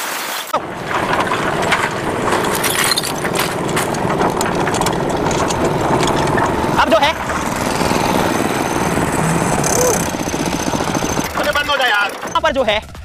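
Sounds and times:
debris clattering in steel drum: 0.6 - 9.2
concrete mixer engine running: 0.6 - 13.0.

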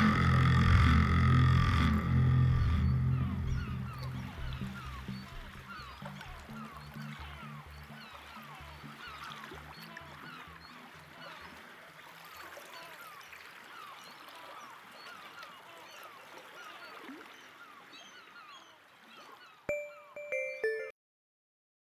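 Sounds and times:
chirping animal calls: 0.0 - 11.4
low pulsing music: 0.0 - 12.1.

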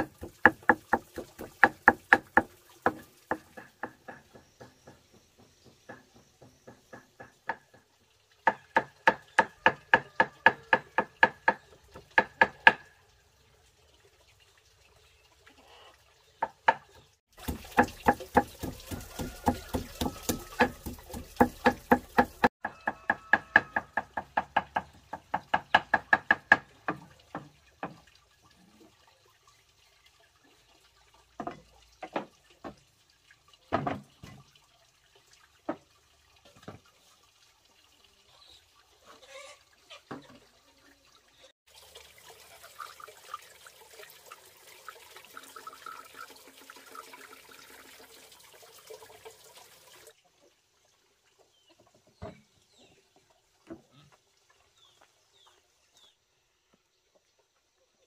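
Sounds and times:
knife chopping on wooden board: 17.4 - 22.5
scattered knocks: 17.4 - 22.5.

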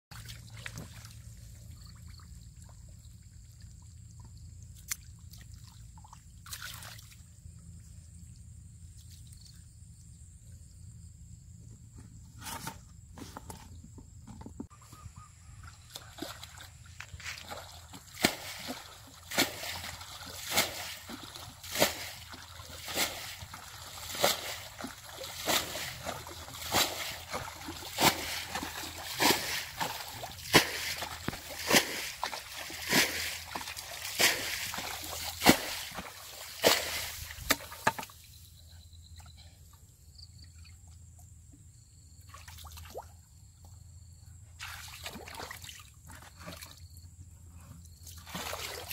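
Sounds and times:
splashing in shallow water: 0.1 - 7.7, 15.0 - 38.4, 42.2 - 43.2, 44.6 - 47.0, 48.0 - 48.9
faint water sloshing: 0.1 - 10.0, 14.3 - 38.4, 47.8 - 48.9.

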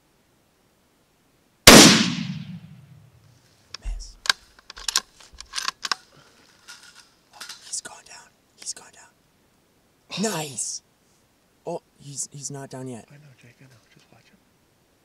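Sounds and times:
rifle shot: 1.7 - 3.0.

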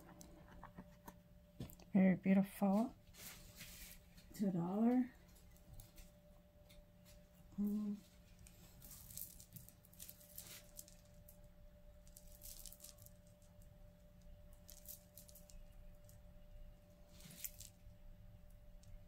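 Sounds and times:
person humming: 7.6 - 8.0
jewelry clinking and rustling: 7.7 - 11.4, 12.0 - 13.6, 14.5 - 16.2, 17.1 - 17.9.

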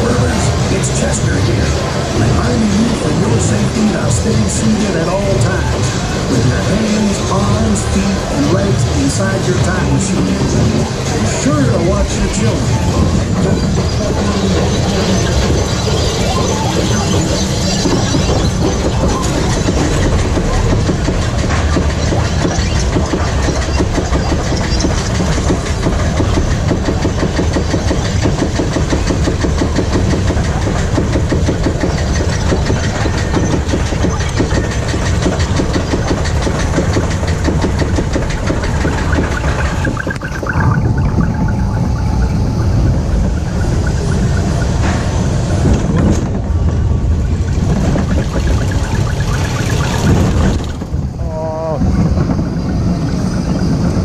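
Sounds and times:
coaster car rumbling on track: 0.0 - 54.0
lift chain clacking: 11.0 - 51.2.

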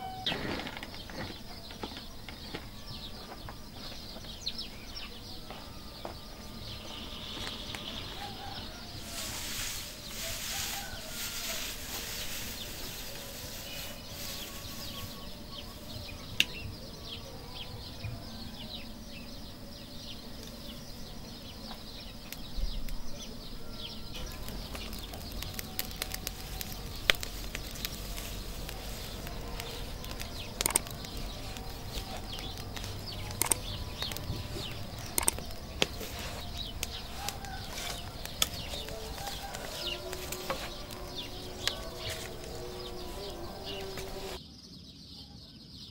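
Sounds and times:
straw rustling: 6.4 - 16.7, 24.2 - 44.4
fire crackling: 7.2 - 16.6, 24.1 - 44.4.

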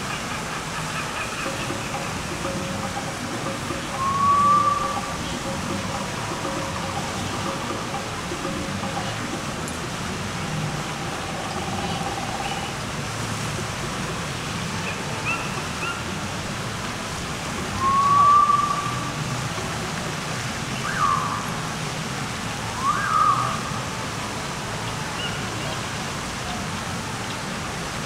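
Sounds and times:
drawn-out high call: 0.0 - 9.8, 10.4 - 13.3, 14.6 - 16.9, 17.5 - 21.8, 22.6 - 27.6
short gliding calls: 0.0 - 13.8, 17.4 - 21.7, 22.6 - 24.0
distant voices: 0.0 - 28.0
steady rushing hiss: 0.0 - 28.0.

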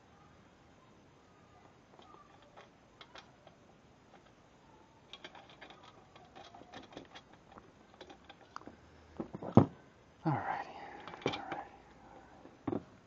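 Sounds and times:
small metal clicks: 1.9 - 4.4, 5.0 - 8.8.

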